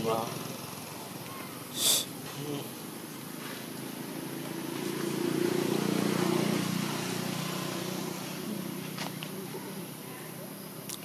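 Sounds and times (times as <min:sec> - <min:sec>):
vehicle engine passing by: 0:02.2 - 0:10.6.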